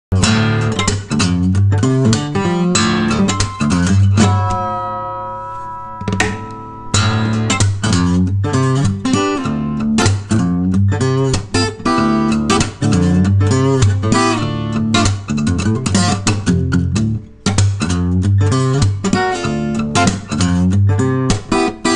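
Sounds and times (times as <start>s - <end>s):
guitar picking a melody: 0.1s - 21.9s
low bass line: 3.1s - 8.7s.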